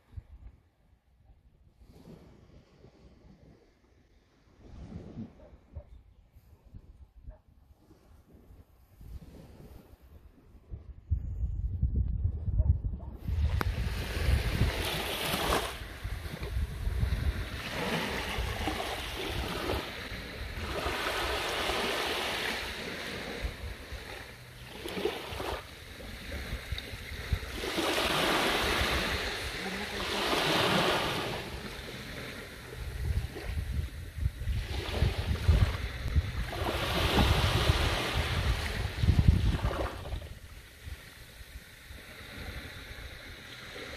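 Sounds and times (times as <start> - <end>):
wind rumbling on microphone: 0.0 - 43.9
small waves breaking on beach: 13.4 - 43.9.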